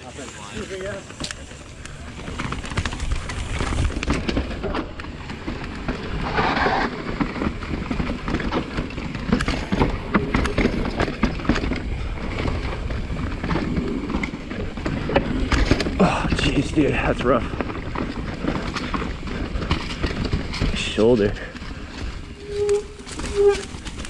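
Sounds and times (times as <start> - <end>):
tyres rumbling on dirt and rocks: 0.0 - 24.0
bike knocks and rattles: 0.5 - 24.0.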